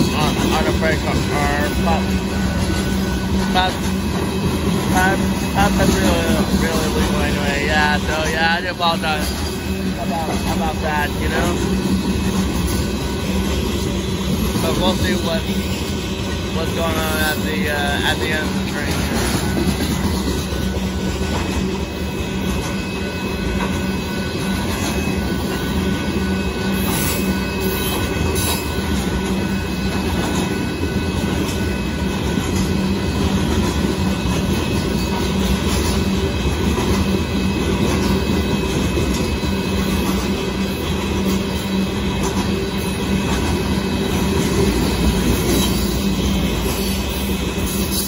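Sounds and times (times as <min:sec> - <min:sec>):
freight train wheels rumbling: 0:00.0 - 0:48.0.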